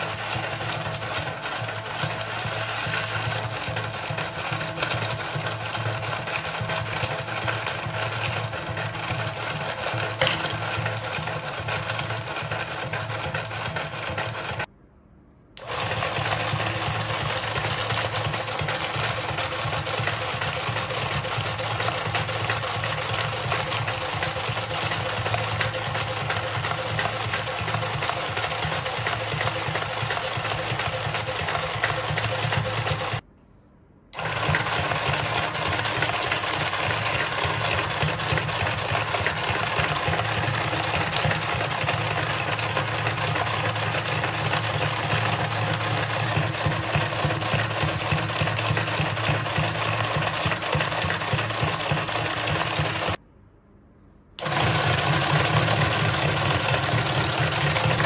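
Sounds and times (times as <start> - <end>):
plastic conveyor clattering: 0.0 - 14.7, 15.6 - 33.2, 34.2 - 53.2, 54.4 - 58.0
toy electric motor running hard: 0.0 - 14.7, 15.6 - 33.2, 34.2 - 53.2, 54.4 - 58.0.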